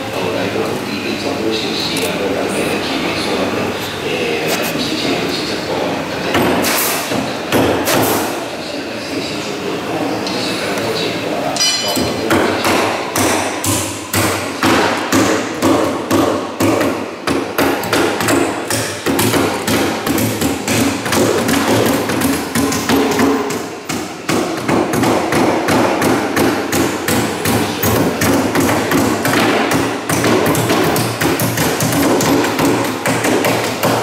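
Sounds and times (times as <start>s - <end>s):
hammers striking wood: 6.3s - 8.2s, 11.6s - 34.0s.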